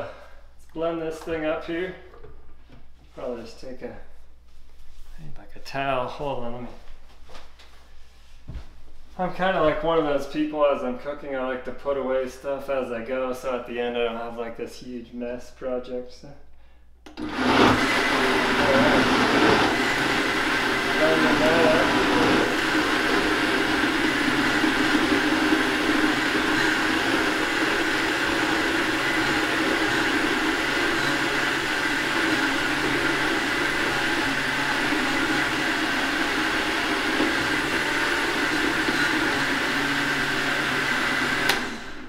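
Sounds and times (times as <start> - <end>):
blender motor running: 17.1 - 42.0.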